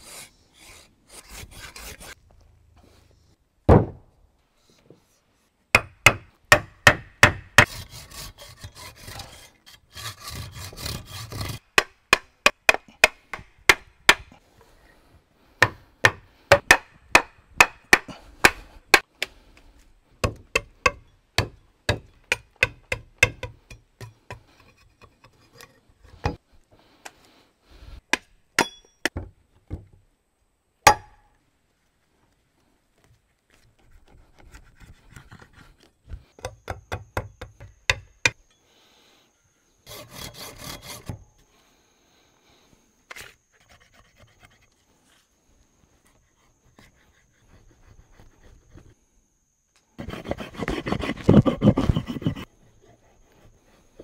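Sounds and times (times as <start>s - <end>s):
rubbing rasping noise: 50.0s - 53.6s.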